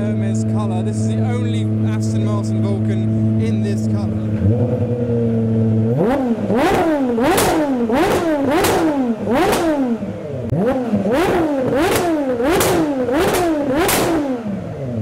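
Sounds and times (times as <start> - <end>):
car engine revving: 0.0 - 15.0
exhaust cracks: 0.0 - 15.0.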